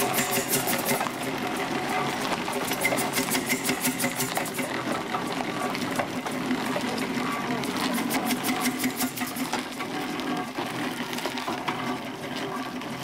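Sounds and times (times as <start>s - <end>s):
clatter of engine motion: 0.0s - 13.0s
steam engine exhaust chuffing: 0.0s - 13.0s.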